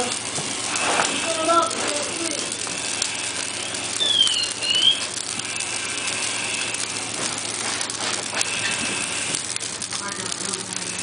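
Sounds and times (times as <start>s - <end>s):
fire crackling and hissing: 0.0s - 11.0s
high whistling tone: 3.6s - 5.1s.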